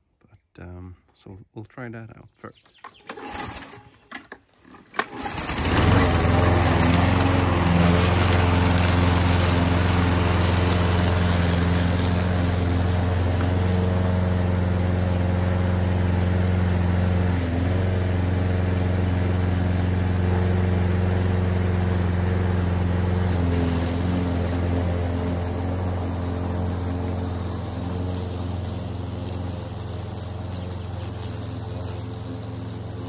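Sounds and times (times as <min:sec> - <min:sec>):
lawn mower engine running: 0:02.7 - 0:33.0.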